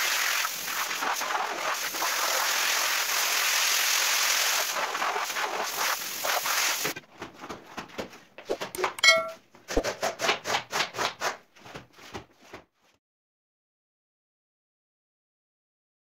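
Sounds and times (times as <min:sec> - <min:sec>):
pressure-washer spray hissing: 0:00.0 - 0:07.0
squeegee scraping water on tiles: 0:00.7 - 0:07.0
brief chime: 0:08.8 - 0:09.4.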